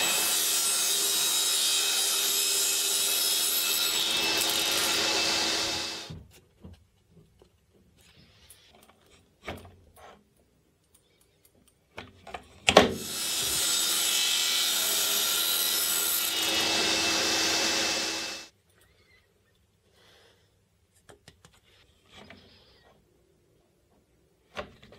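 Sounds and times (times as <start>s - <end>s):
table saw running: 0.0s - 6.2s, 13.0s - 18.5s.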